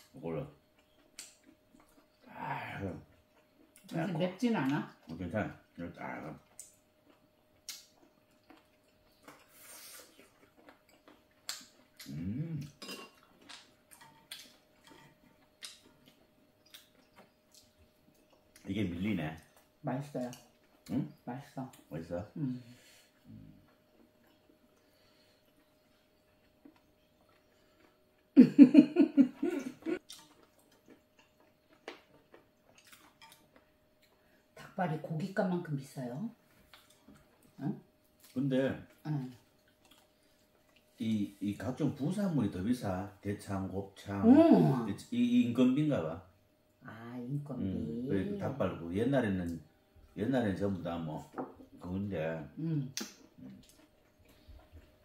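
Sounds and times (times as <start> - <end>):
chewing: 0.6 - 2.3, 3.0 - 3.9, 4.6 - 20.9, 23.0 - 28.4, 29.8 - 34.5, 36.5 - 41.3, 53.0 - 55.0.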